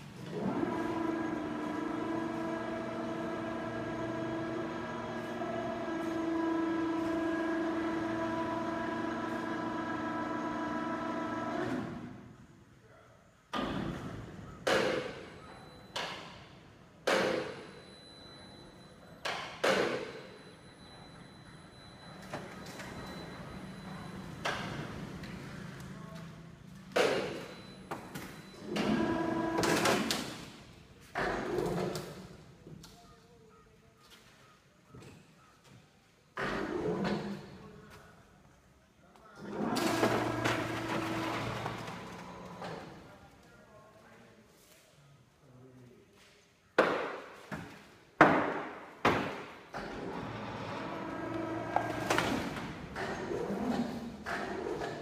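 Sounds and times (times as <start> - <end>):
mechanical hum with low drone: 0.0 - 12.9, 20.2 - 32.9, 49.7 - 55.0.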